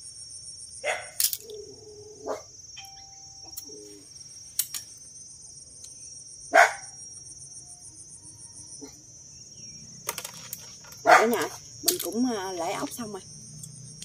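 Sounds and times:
insects chirring: 0.0 - 14.0
dog barking: 0.8 - 1.2, 2.2 - 2.5, 6.5 - 7.0, 11.0 - 11.6
dog yelping: 11.0 - 11.6.

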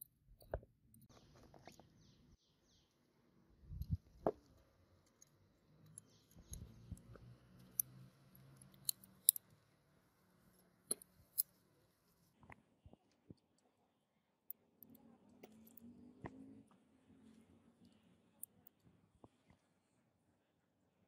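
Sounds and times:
sharp metal clicks: 7.6 - 9.4.

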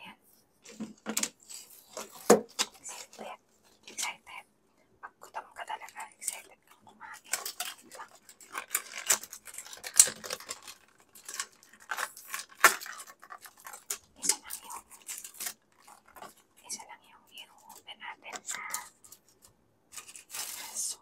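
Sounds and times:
close chewing and mouth sounds: 5.1 - 19.5.

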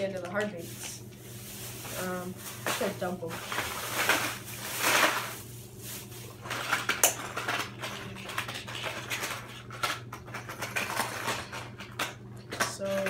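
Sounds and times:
plastic bag rustling: 0.0 - 12.0
plastic packages clicking and clattering: 0.1 - 13.0.

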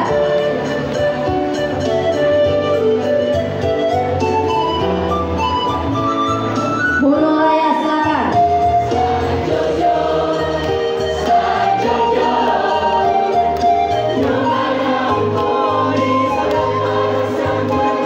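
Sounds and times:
mixed choir singing: 8.7 - 18.0.

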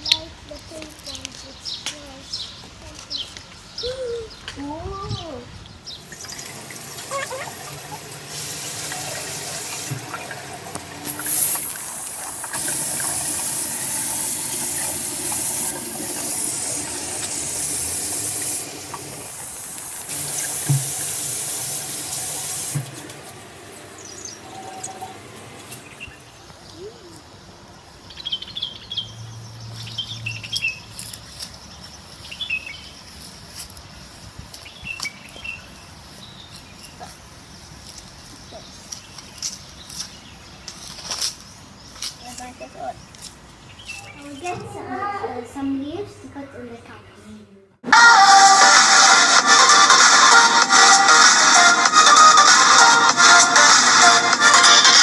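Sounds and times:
tap water running into sink: 6.0 - 24.0
bird chirps: 24.0 - 27.2, 43.7 - 44.5.

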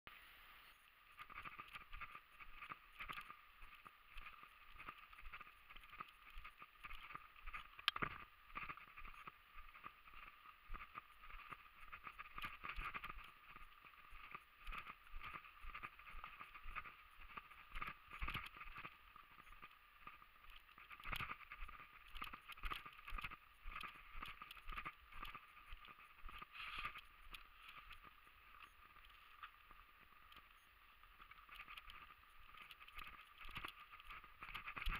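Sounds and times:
footsteps through grass and leaves: 20.5 - 29.8.

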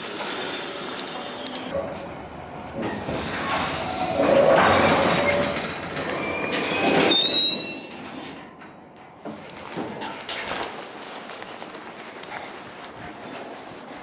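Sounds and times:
train wheels rumbling on rails: 0.0 - 14.0
high wheel squeals: 3.2 - 8.0.

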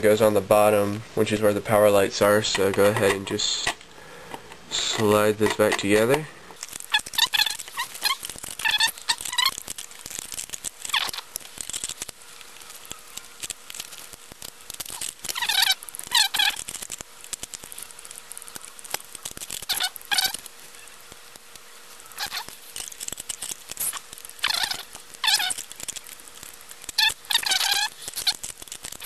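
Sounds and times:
plastic squeaking: 1.3 - 3.9, 4.7 - 29.0.

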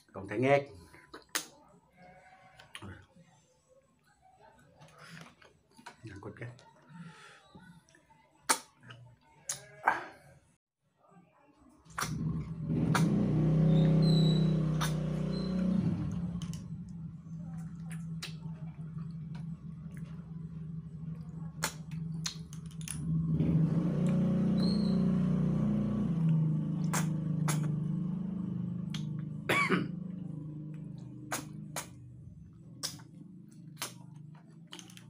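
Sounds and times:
steady low hum: 14.8 - 34.7
shell clicks and lip smacks: 32.8 - 35.0.

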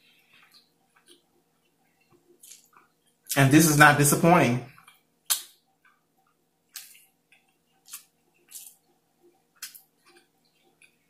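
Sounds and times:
crisp chewing crunches: 2.3 - 2.8, 6.7 - 7.1, 7.8 - 8.9.

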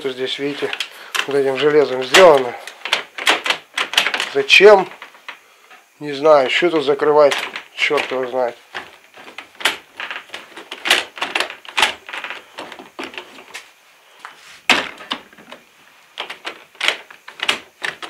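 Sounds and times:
door lock clicking and clattering: 2.0 - 5.1, 7.2 - 13.6, 14.7 - 15.6, 16.2 - 18.0.

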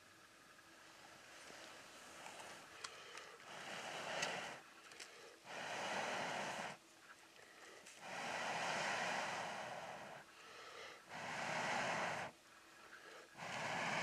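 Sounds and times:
man blowing on charcoal: 3.4 - 4.6, 5.4 - 6.8, 7.9 - 12.4, 13.2 - 14.0.

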